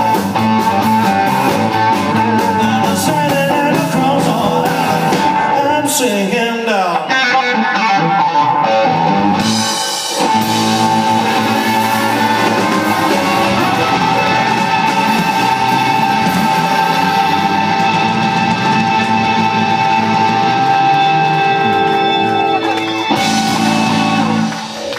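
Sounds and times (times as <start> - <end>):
rock band playing: 0.0 - 24.9
guitar pitch slides: 7.1 - 24.6.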